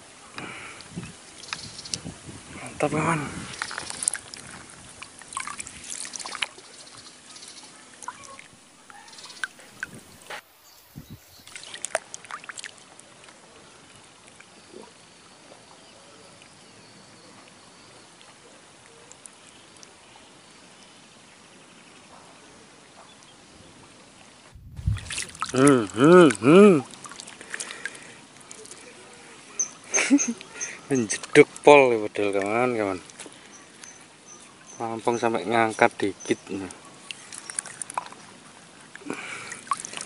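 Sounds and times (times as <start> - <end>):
faint outdoor hiss: 0.0 - 40.0
water splashing and dripping: 3.0 - 7.0, 7.9 - 13.4, 24.5 - 28.9, 36.4 - 40.0.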